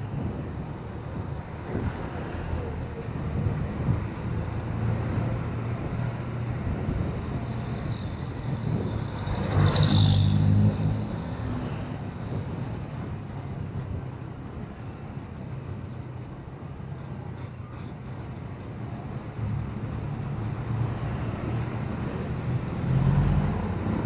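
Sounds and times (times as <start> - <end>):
wind noise: 0.0 - 17.2
vehicle passing close: 3.9 - 12.0, 19.8 - 24.0.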